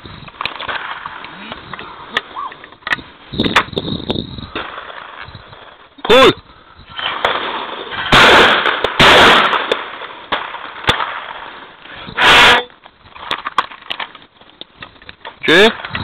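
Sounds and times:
shotgun blasts: 6.9s - 11.4s, 12.2s - 12.7s.

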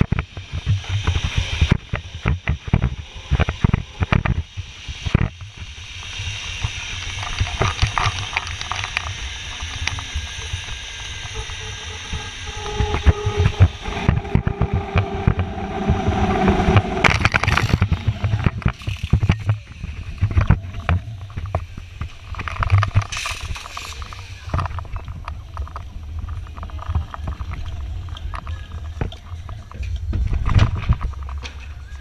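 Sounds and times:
zip-line pulleys whining: 2.9s - 21.0s
wind buffeting microphone: 9.2s - 23.2s
trolley and harness rattling: 17.1s - 32.0s.

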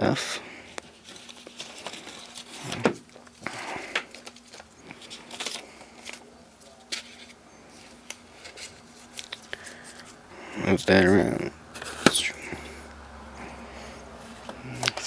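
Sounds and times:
paper and cardboard rustling: 0.6s - 12.4s.

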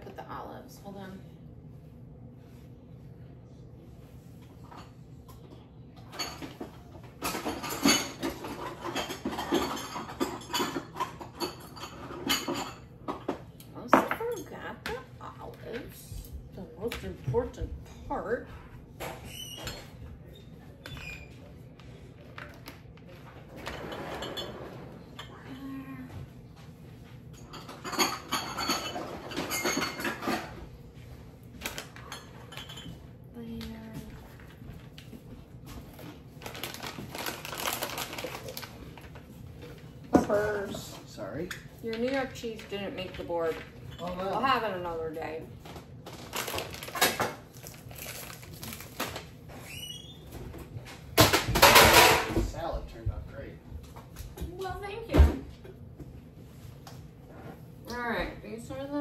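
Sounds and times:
dishes clattering: 4.6s - 15.0s, 23.2s - 25.4s, 27.3s - 30.7s, 31.6s - 33.1s, 51.2s - 52.8s
food packaging rustling: 35.8s - 39.9s, 45.6s - 49.8s.

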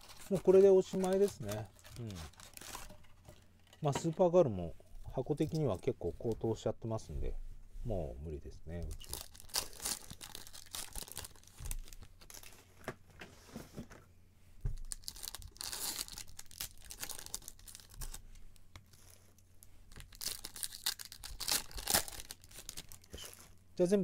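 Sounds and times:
wrappers tearing and crinkling: 0.0s - 3.2s, 8.7s - 12.8s, 14.8s - 18.2s, 19.9s - 23.6s.

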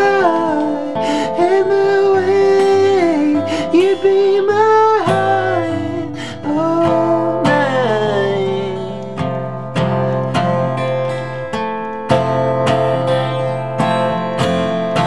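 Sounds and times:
man singing: 0.0s - 9.2s
acoustic guitar strumming: 0.0s - 15.0s.

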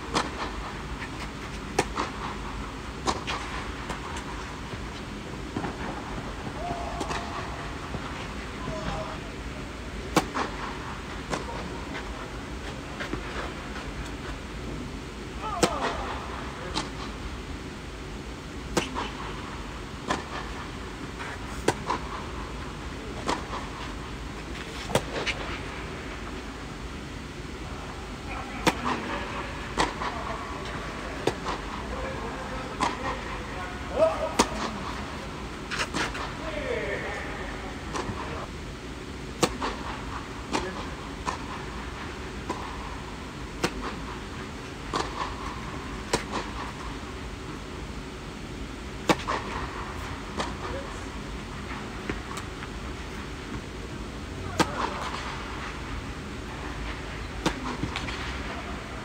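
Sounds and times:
rackets striking tennis ball: 0.0s - 9.1s, 10.1s - 14.2s, 15.5s - 17.2s, 18.7s - 19.4s, 20.0s - 22.4s, 23.1s - 24.0s, 24.6s - 25.7s, 28.5s - 36.8s, 37.8s - 38.5s, 39.3s - 47.1s, 49.0s - 53.7s, 54.4s - 59.0s
low background noise: 0.0s - 59.0s
tennis ball bouncing on court: 1.7s - 4.8s, 51.7s - 52.8s, 57.3s - 58.2s.

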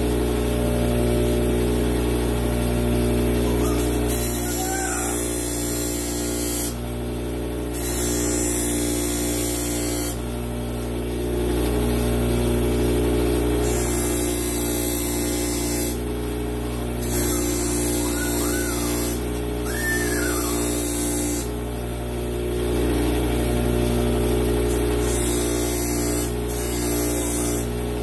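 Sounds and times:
bench grinder running: 2.8s - 6.9s, 7.7s - 10.2s, 11.9s - 21.6s, 22.6s - 28.0s.

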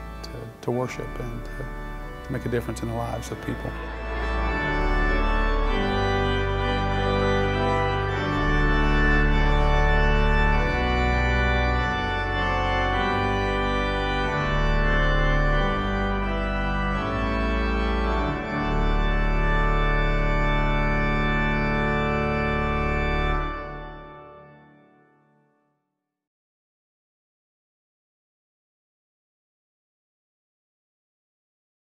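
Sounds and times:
pipe organ chords: 0.0s - 25.5s.

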